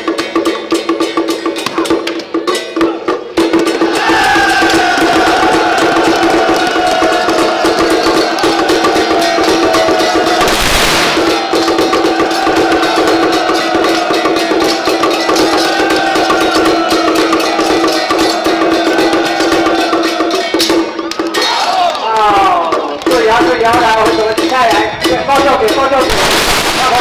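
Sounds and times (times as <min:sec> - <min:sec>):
fast drumming: 0:00.0 - 0:27.0
cymbal crash: 0:08.9 - 0:16.0, 0:26.0 - 0:27.0.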